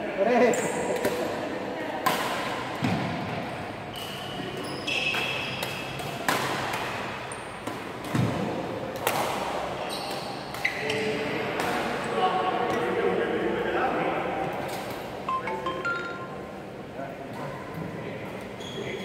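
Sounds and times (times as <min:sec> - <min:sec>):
shoes squeaking on wooden court: 0:03.9 - 0:06.0, 0:09.8 - 0:11.2, 0:18.4 - 0:19.0
racket hitting shuttlecock: 0:05.1 - 0:10.7.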